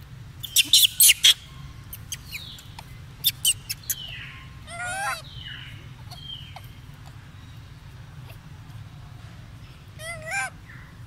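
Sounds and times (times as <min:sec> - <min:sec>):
young monkey squealing and shrieking: 0:00.4 - 0:02.5, 0:03.2 - 0:05.2, 0:10.0 - 0:10.5.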